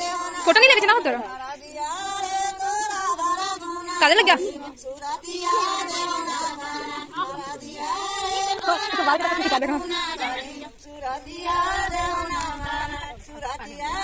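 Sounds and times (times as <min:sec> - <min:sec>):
women singing without instruments: 0:00.0 - 0:14.0.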